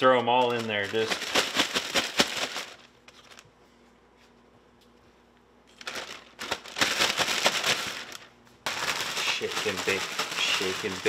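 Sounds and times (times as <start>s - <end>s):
plastic bag crinkling and rustling: 0.0s - 3.4s, 5.7s - 11.0s.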